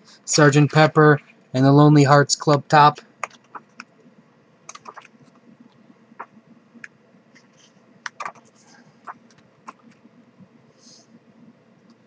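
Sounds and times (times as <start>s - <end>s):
book pages turning: 4.7s - 5.4s.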